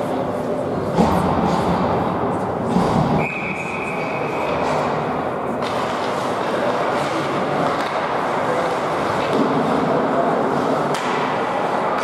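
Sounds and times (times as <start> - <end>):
crowd murmur: 0.0 - 12.0
skates on ice: 3.8 - 12.0.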